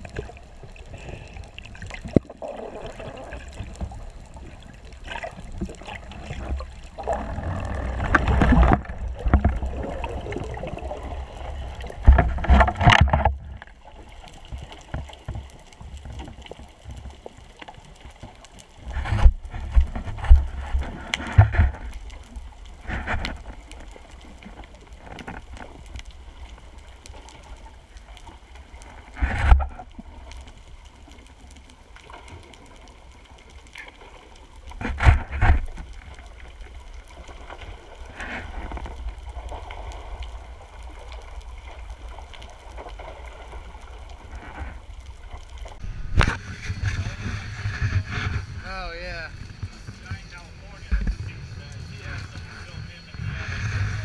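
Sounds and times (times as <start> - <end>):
muffled underwater noise: 0.0 - 13.7, 45.7 - 54.0
water sloshing and bubbling: 0.0 - 54.0.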